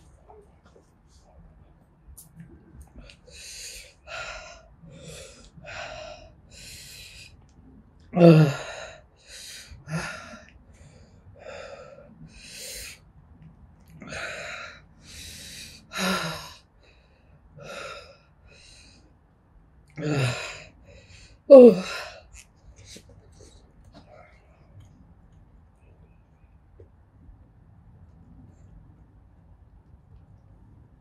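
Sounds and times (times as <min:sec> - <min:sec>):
woman breathing hard and gasping: 0:03.0 - 0:07.3, 0:08.2 - 0:13.0, 0:14.0 - 0:17.0, 0:17.6 - 0:18.9.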